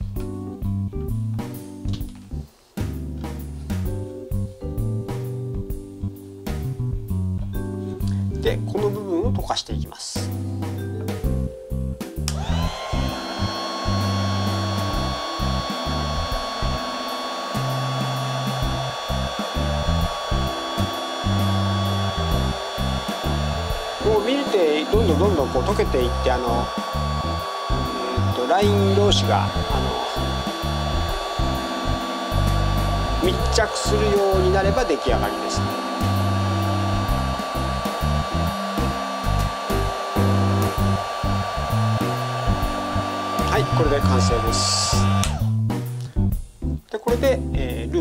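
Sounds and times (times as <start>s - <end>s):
background music: 0.0s - 48.0s
heat gun fan blowing: 12.2s - 45.6s.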